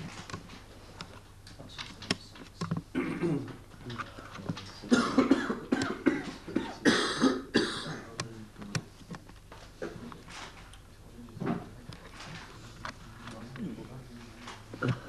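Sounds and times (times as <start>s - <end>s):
person coughing: 2.9s - 3.6s, 4.9s - 8.2s.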